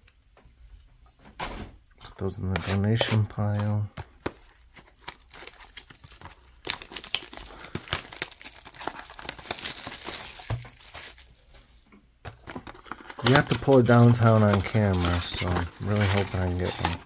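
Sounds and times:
plastic shrink-wrap tearing: 5.0s - 11.4s, 12.8s - 17.0s.

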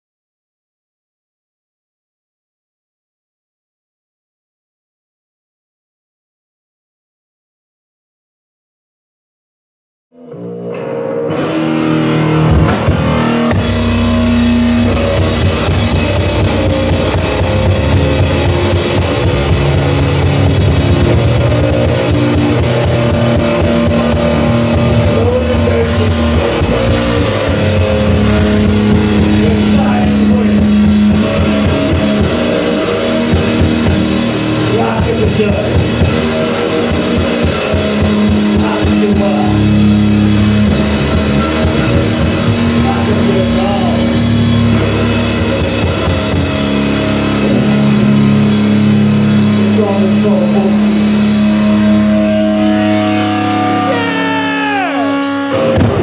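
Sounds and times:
electric guitar: 10.1s - 56.0s
drum kit: 10.4s - 56.0s.

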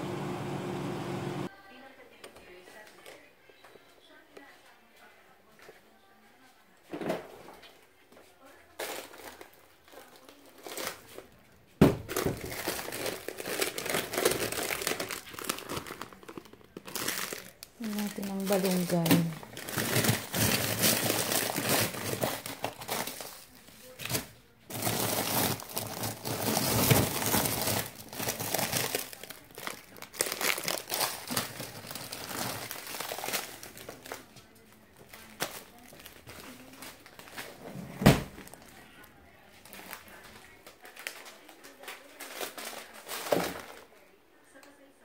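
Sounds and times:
plastic bags crinkling: 8.7s - 11.4s, 12.0s - 37.6s, 38.2s - 44.1s.

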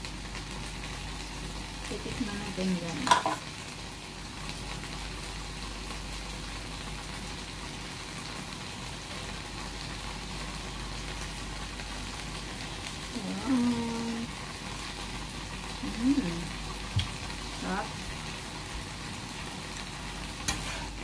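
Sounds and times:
shrimp sizzling in frying pan: 0.0s - 21.0s
person humming: 13.2s - 14.3s.

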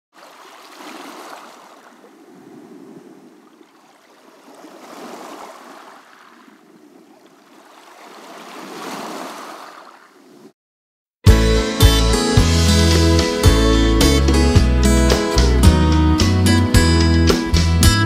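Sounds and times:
small waves washing ashore: 0.1s - 10.5s.

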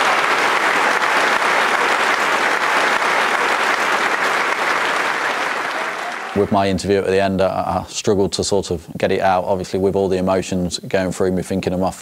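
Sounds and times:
large audience applauding: 0.0s - 7.0s.

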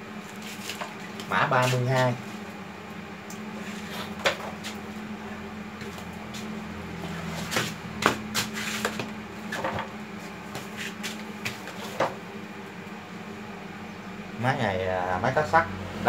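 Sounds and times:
steady low hum: 0.0s - 16.0s
footsteps: 5.8s - 12.2s.

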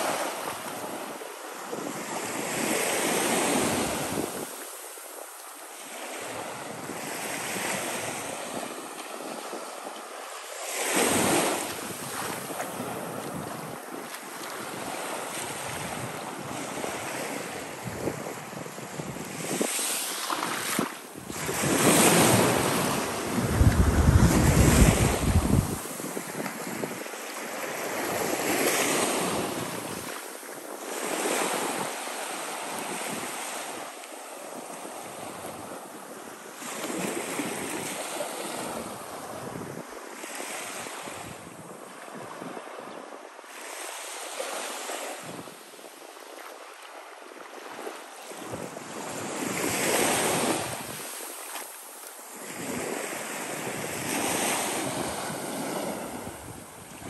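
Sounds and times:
wind on microphone: 0.0s - 5.3s, 10.8s - 33.8s, 36.6s - 43.3s, 44.6s - 45.6s, 47.7s - 51.7s, 52.3s - 57.0s
surf washing up sandy shore: 0.0s - 57.0s.

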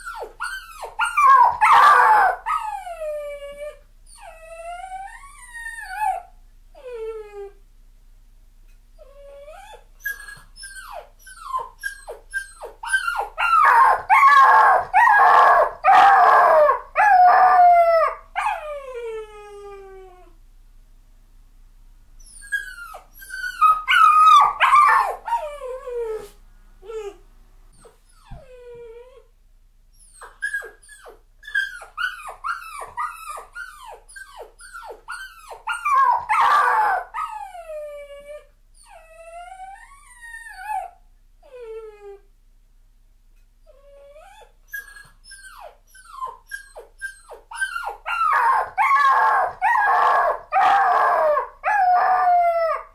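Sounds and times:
puppy crying: 0.0s - 3.0s, 9.2s - 18.8s, 22.2s - 26.3s, 30.0s - 41.0s, 43.8s - 52.9s.

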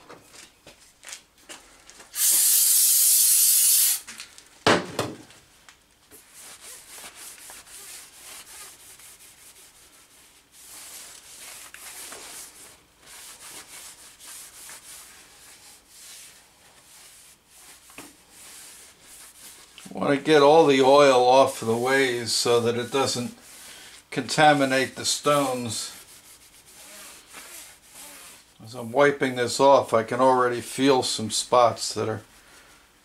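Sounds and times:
loud hiss: 2.1s - 4.1s
towel rubbing metal: 6.2s - 23.6s, 24.3s - 28.6s.

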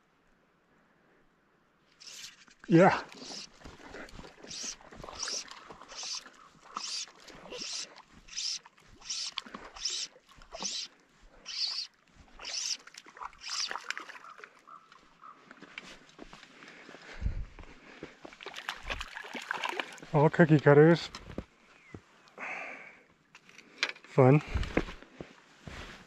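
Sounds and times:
fly line swishing: 2.0s - 10.9s, 11.5s - 14.1s.

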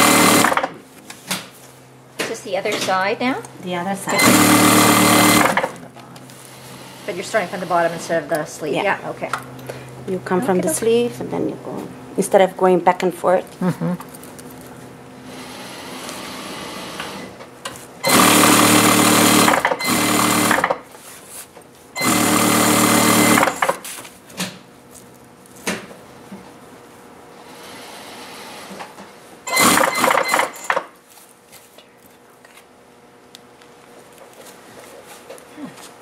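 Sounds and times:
sewing machine stitching: 0.0s - 0.7s, 4.1s - 5.7s, 18.0s - 20.8s, 22.0s - 23.8s, 29.5s - 30.9s.

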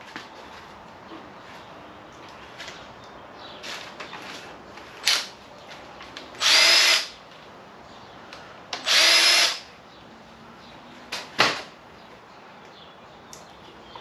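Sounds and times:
power tool motor whirring: 6.4s - 7.1s, 8.9s - 9.6s.

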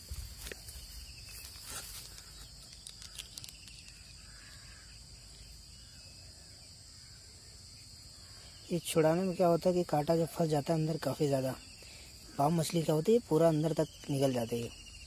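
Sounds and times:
insects chorus: 0.0s - 15.0s.

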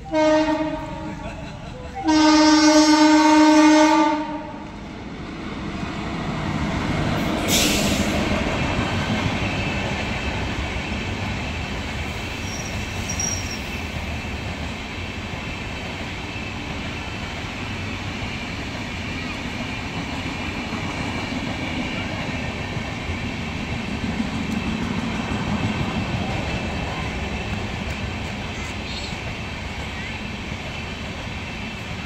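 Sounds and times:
locomotive horn blast: 0.0s - 1.2s, 2.0s - 4.8s
train coaches rumbling on rails: 0.0s - 32.0s
brief hissing burst: 7.4s - 8.2s.

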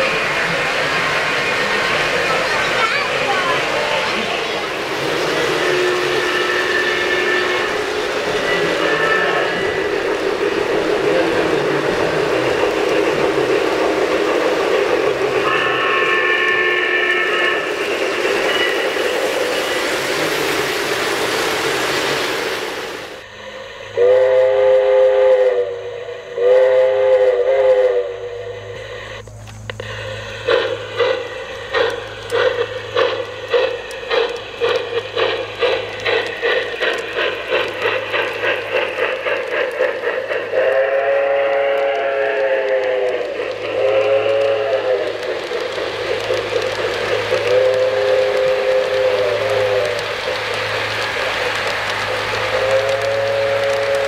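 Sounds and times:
model train rattling on track: 0.0s - 54.0s
model steam whistle: 5.5s - 10.0s, 15.3s - 17.8s, 23.9s - 29.2s, 40.5s - 45.4s, 47.3s - 50.2s, 52.4s - 54.0s.

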